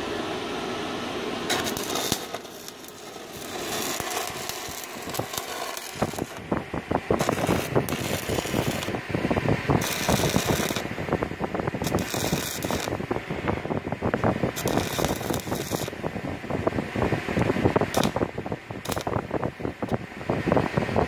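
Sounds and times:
welding arc crackling: 1.3s - 20.0s
sharp welding hiss: 1.4s - 13.1s, 14.3s - 16.0s, 17.8s - 19.2s.

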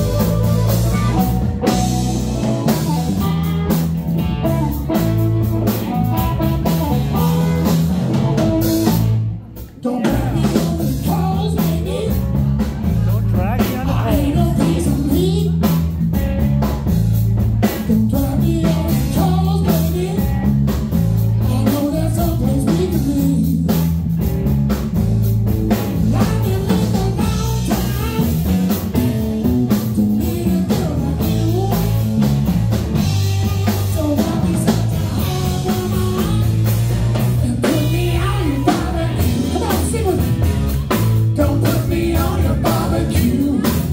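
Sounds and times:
bass line: 0.0s - 43.9s
drum kit beat: 0.0s - 43.9s
electric guitars: 0.0s - 43.9s
man singing: 9.6s - 15.6s, 17.6s - 20.5s, 26.0s - 28.4s, 29.0s - 32.4s, 33.3s - 40.6s, 41.3s - 43.9s.

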